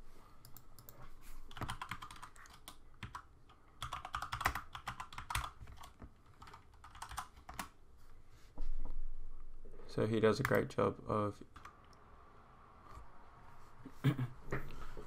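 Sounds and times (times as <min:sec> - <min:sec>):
keyboard typing: 0:00.4 - 0:07.8.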